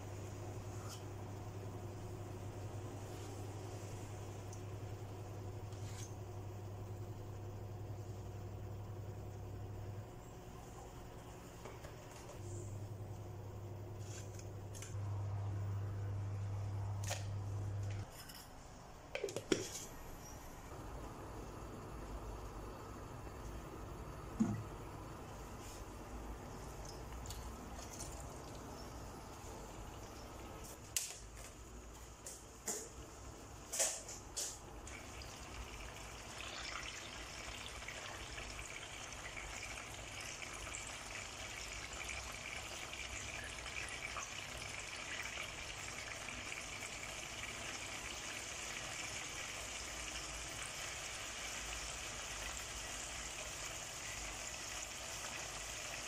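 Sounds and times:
chicken sizzling in oil: 35.0s - 56.0s.

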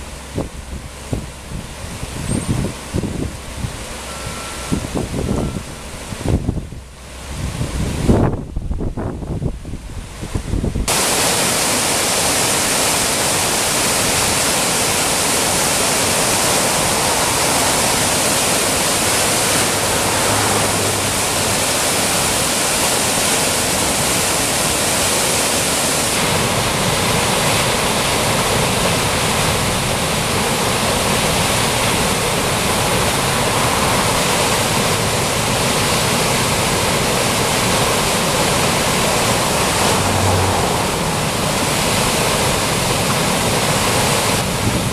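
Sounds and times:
river rushing over weir: 0.0s - 44.9s.

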